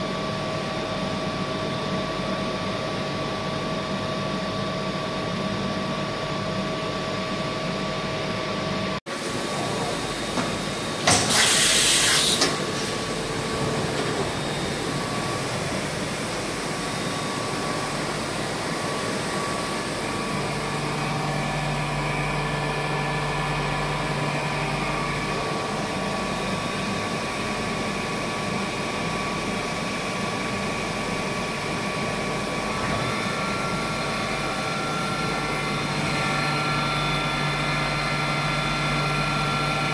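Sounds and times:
machine hum with held tones: 0.0s - 39.9s
loud hiss: 11.1s - 12.8s.

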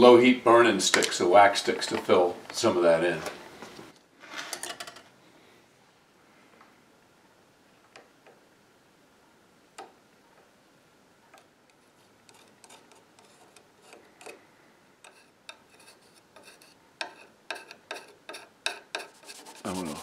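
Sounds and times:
metal knife scraping wood: 11.8s - 14.4s, 15.0s - 20.0s.

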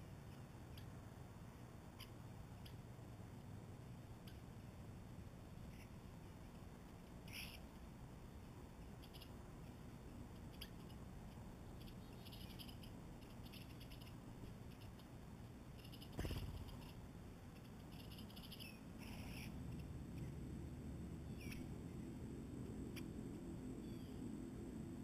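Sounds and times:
small birds chirping: 0.0s - 20.4s, 21.2s - 22.2s, 23.7s - 24.4s
wings fluttering: 10.4s - 19.6s.

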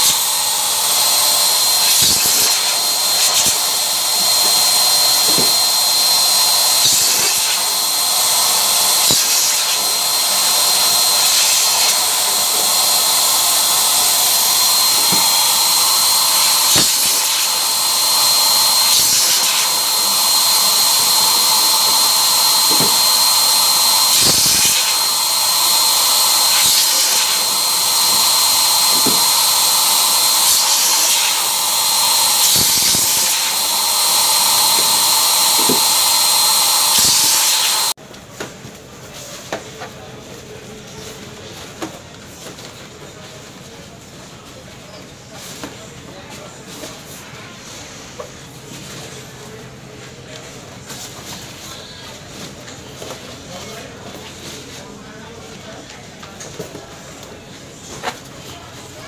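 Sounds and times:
balloon inflator blower whining: 0.0s - 38.0s.

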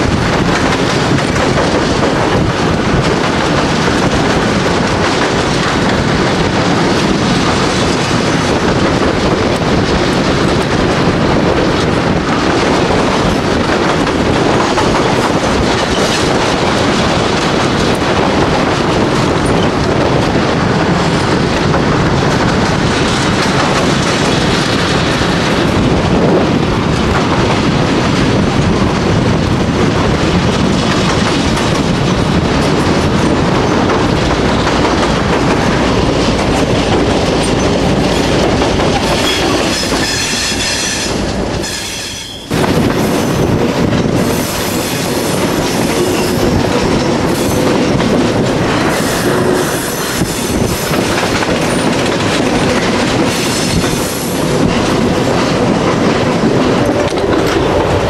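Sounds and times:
train wheels rumbling: 0.0s - 58.0s
high wheel squeal: 39.1s - 42.5s.

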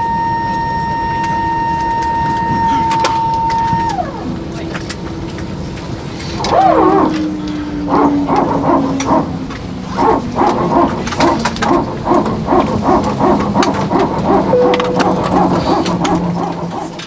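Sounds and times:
aircraft cabin hum: 0.0s - 17.0s.

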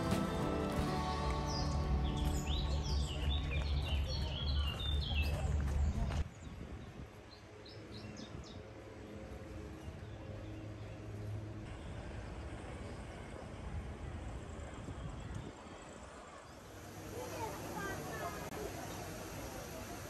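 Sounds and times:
small birds chirping: 0.0s - 8.7s.

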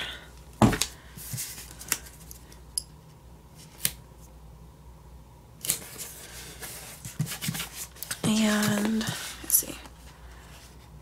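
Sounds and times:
paper rustling: 5.7s - 9.6s.

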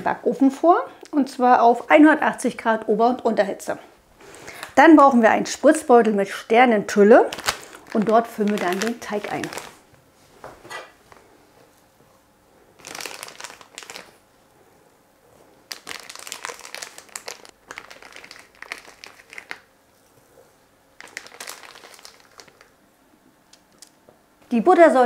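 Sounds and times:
plastic piping bag crinkling: 6.9s - 9.9s, 12.8s - 14.2s, 15.5s - 19.7s, 21.0s - 22.8s.

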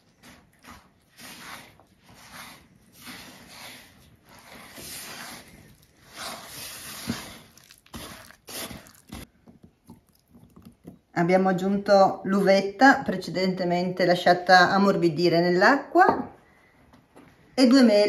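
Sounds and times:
dough stirred in mixing bowl: 0.0s - 11.1s.

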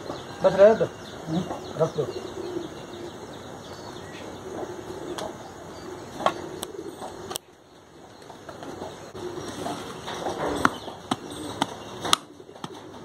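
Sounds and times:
dove cooing: 1.1s - 13.0s.

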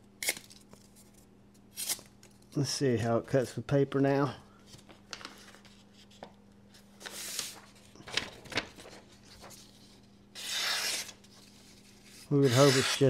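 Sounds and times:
knife slicing paper: 10.4s - 13.0s.

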